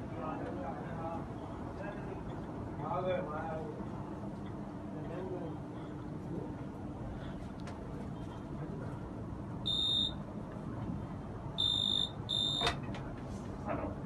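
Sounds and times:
steady background noise: 0.0s - 14.0s
short electronic beeps: 9.7s - 10.2s, 11.6s - 12.7s.

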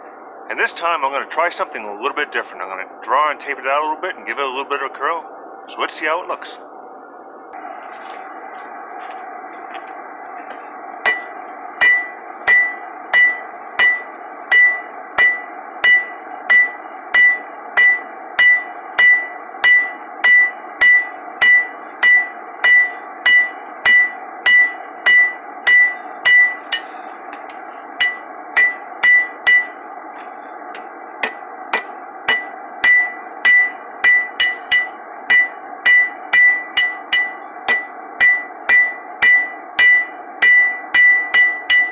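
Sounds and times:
hammer ringing on an anvil: 11.1s - 27.4s, 28.0s - 29.8s, 31.2s - 41.9s.

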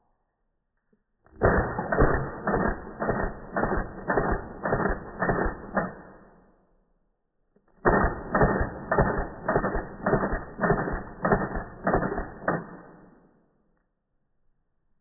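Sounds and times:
slowed-down pistol shots: 1.2s - 6.6s, 7.6s - 13.6s.

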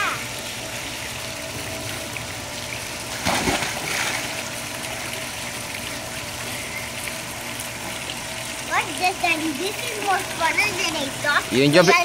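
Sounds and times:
water sloshing: 1.3s - 11.5s
child splashing into pool: 3.1s - 4.6s.

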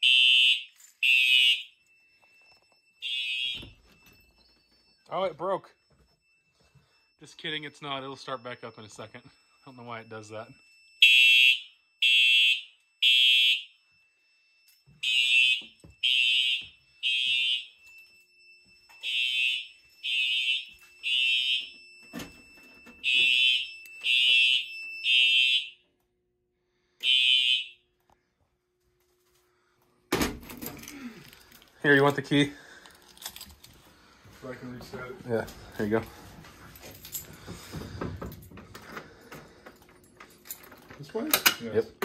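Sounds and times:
fire alarm horn blasts: 0.0s - 26.0s, 26.7s - 27.9s.

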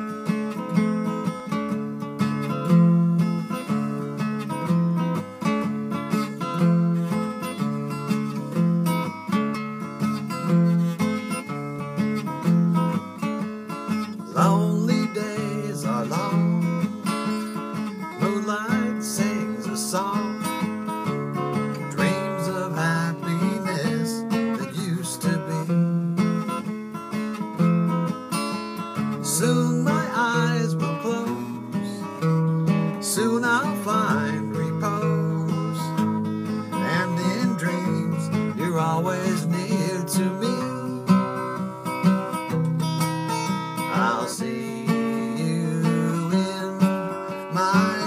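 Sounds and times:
acoustic guitar strumming: 0.0s - 48.0s
man singing: 14.2s - 21.0s, 21.6s - 26.4s, 29.2s - 41.7s, 43.8s - 48.0s.

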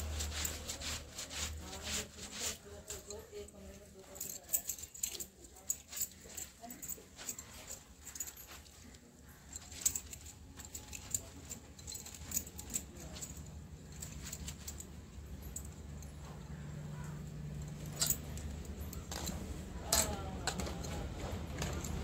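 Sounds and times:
wet cloth rubbed and scrunched: 0.0s - 15.6s
bangles clinking: 0.0s - 22.0s
low steady hum: 0.0s - 22.0s.

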